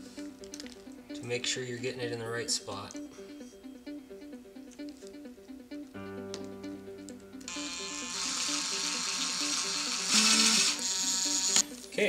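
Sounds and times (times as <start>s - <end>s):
background music: 0.0s - 12.0s
cordless drill whirring: 7.5s - 11.6s.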